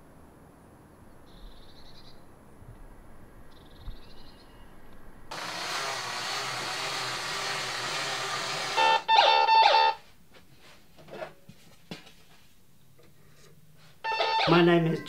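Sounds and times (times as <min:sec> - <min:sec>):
toy robot motor whirring: 0:05.3 - 0:09.5.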